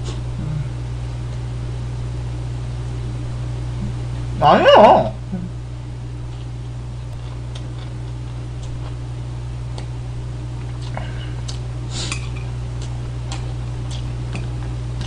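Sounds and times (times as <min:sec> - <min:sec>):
low electrical hum: 0:00.0 - 0:15.0
chewing: 0:07.1 - 0:09.0, 0:10.6 - 0:15.0.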